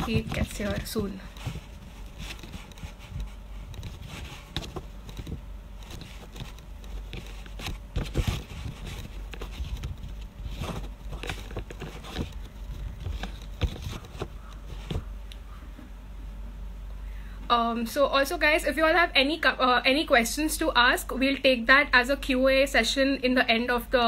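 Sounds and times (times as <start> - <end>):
phone being tapped and handled: 0.0 - 15.1
steady low hum: 0.0 - 24.0.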